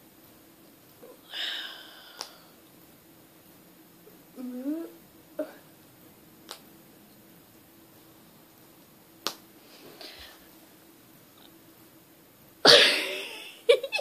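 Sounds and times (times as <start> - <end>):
faint steady hum: 0.0 - 14.0
person humming: 4.4 - 5.6.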